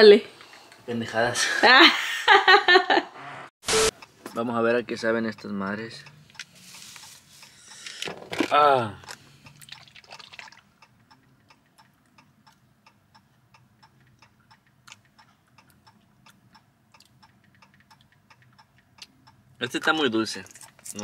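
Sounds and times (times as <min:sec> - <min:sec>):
faint even ticking: 0:04.0 - 0:06.5.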